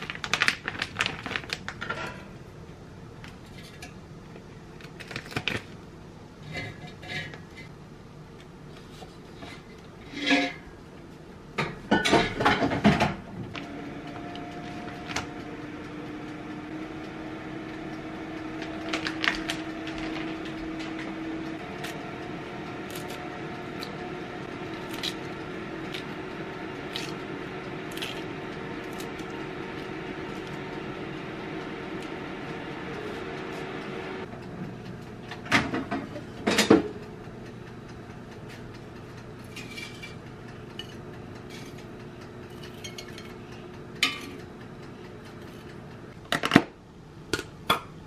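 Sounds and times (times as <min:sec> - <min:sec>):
kitchen appliance humming: 0:08.3 - 0:46.3
dishes clattering: 0:10.1 - 0:10.7, 0:11.6 - 0:13.2.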